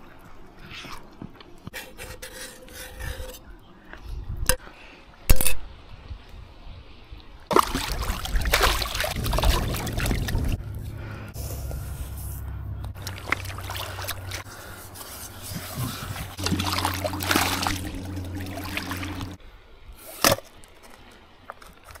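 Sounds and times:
river water splashing: 0:07.5 - 0:12.3, 0:12.9 - 0:19.4
steady low hum: 0:09.2 - 0:19.4.

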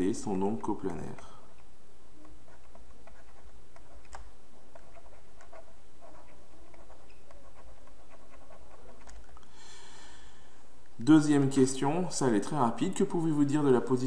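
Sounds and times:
stylus tapping and scratching on tablet: 0:00.0 - 0:09.4.

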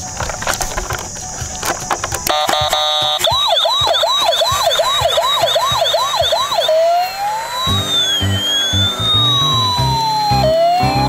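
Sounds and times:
toy electronic siren: 0:01.6 - 0:11.0.

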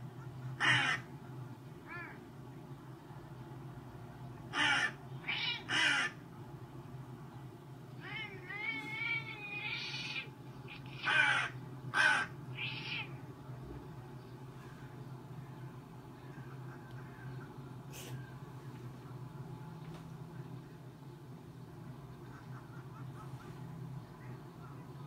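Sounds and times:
steady low hum: 0:00.0 - 0:25.0
crow cawing: 0:00.6 - 0:01.1, 0:04.5 - 0:06.2, 0:09.9 - 0:13.1.

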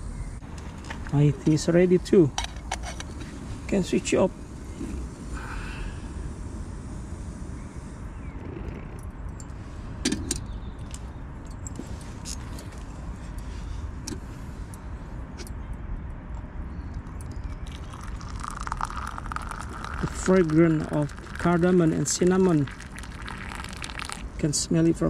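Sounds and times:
steady low rumble: 0:00.0 - 0:15.4.

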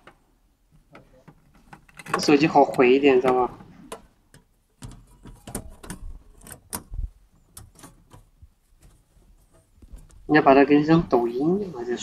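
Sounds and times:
cabinet latches clicking: 0:01.0 - 0:09.0.

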